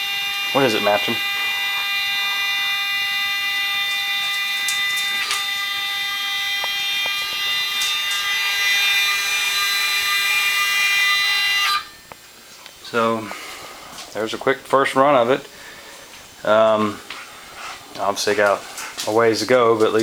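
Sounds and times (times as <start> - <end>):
stepper motors whining: 0.0 - 12.2.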